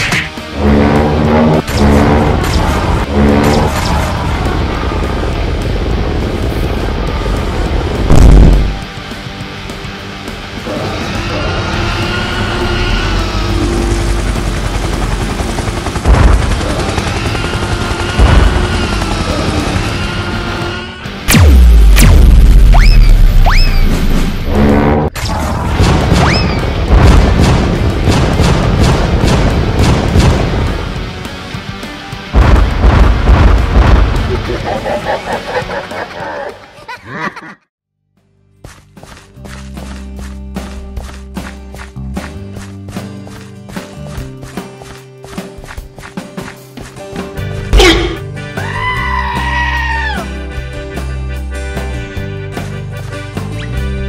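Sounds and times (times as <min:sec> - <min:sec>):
background music with low notes: 0:00.0 - 0:25.2, 0:38.2 - 0:54.0
rumbling and crackling noise: 0:00.5 - 0:09.1, 0:32.4 - 0:35.5
heavy booms: 0:08.0 - 0:08.8.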